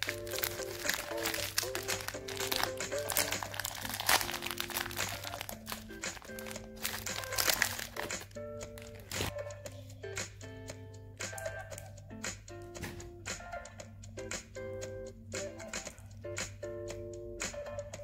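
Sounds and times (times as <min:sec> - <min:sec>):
plastic wrapper crinkling: 0:00.0 - 0:09.3
background music with simple tune: 0:00.0 - 0:18.0.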